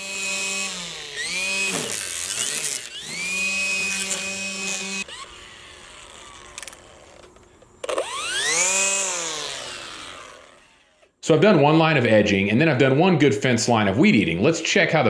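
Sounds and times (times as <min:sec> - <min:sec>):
string trimmer whine: 0:00.0 - 0:11.2.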